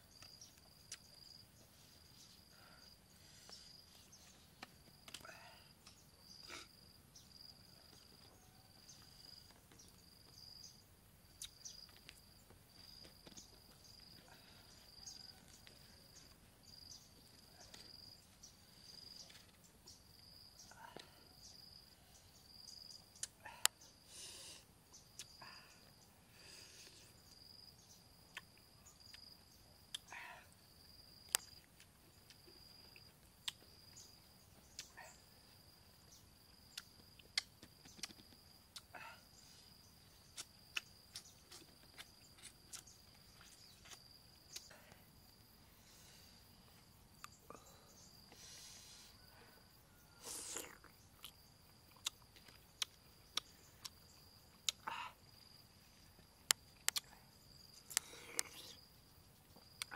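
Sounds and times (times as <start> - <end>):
high insect trill: 0.0 - 59.9
person chewing and lip smacking: 0.8 - 1.2, 11.4 - 12.2, 23.2 - 23.4, 28.3 - 29.3, 31.3 - 33.7, 36.7 - 38.9, 40.3 - 44.7, 50.3 - 54.9, 56.5 - 57.1, 57.9 - 58.8
slurping: 50.2 - 50.9.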